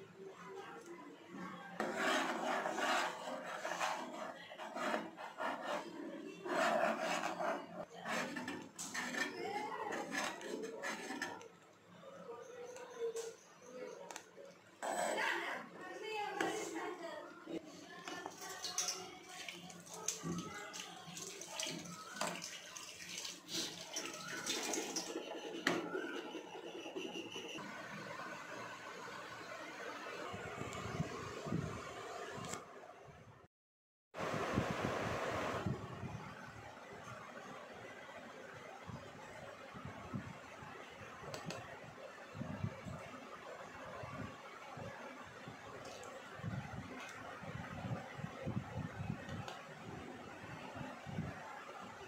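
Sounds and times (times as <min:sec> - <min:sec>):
spoon scraping metal pot: 0:01.8 - 0:11.6, 0:14.8 - 0:15.5, 0:23.5 - 0:27.6
spoon stirring wet sago: 0:18.1 - 0:26.8.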